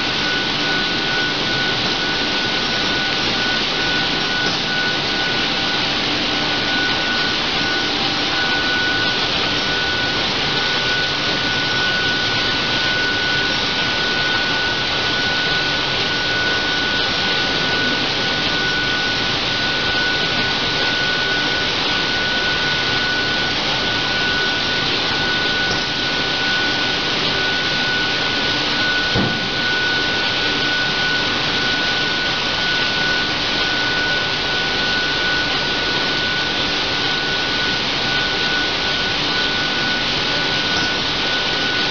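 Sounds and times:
high machine whine: 0:00.0 - 0:41.9
short knock: 0:29.2 - 0:29.5.

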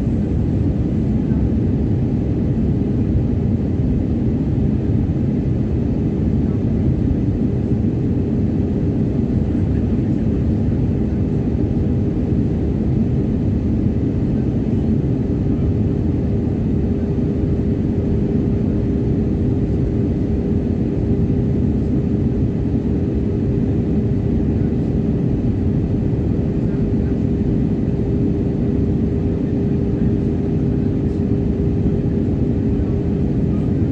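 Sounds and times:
jet engines and airflow rumble: 0:00.0 - 0:33.9.

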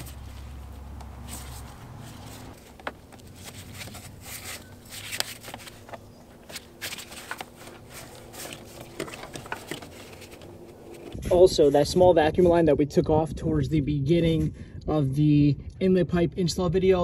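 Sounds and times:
gloved hands rubbing plastic parts: 0:00.0 - 0:11.2.

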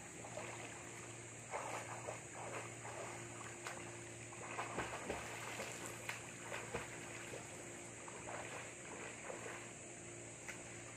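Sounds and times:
swimmer splashing in a pool: 0:00.0 - 0:10.9.

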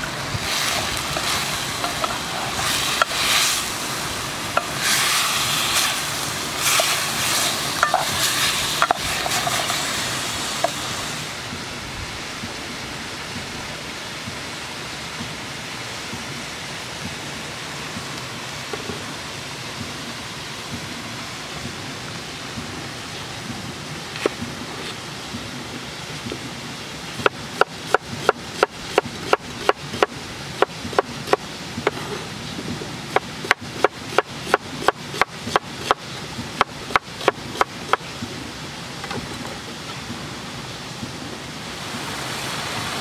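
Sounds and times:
meat sizzling in a metal pot: 0:00.1 - 0:11.4.

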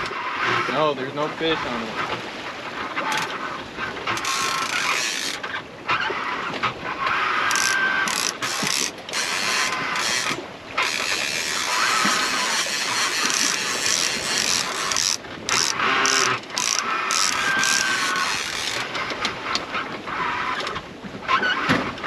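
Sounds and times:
water rushing: 0:00.0 - 0:22.0
wind: 0:00.0 - 0:22.0
fishing reel whirring: 0:04.1 - 0:05.5, 0:07.1 - 0:19.2.

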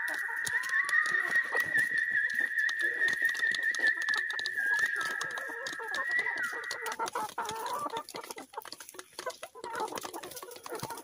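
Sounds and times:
hen long high call: 0:00.0 - 0:07.1
hens clucking: 0:00.0 - 0:11.0
pecking and scratching in straw: 0:00.0 - 0:11.0.

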